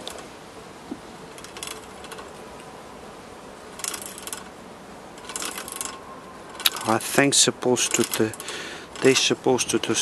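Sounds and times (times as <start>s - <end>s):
bicycle drivetrain ratchet clicking: 1.4s - 2.3s, 3.8s - 4.5s, 5.2s - 6.9s, 7.8s - 10.0s.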